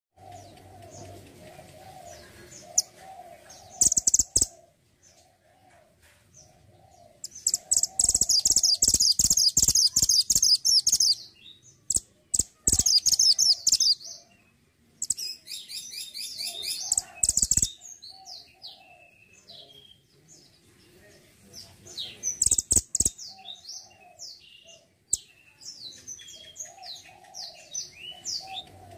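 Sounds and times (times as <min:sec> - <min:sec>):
bird high-pitched trilling song: 0:02.6 - 0:03.0, 0:03.6 - 0:04.6, 0:07.2 - 0:14.2, 0:15.0 - 0:20.0, 0:22.1 - 0:28.7.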